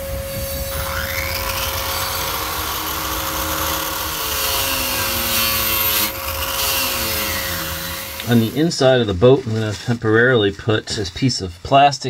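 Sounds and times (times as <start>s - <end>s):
rotary tool sanding disc grinding: 0.0s - 9.0s.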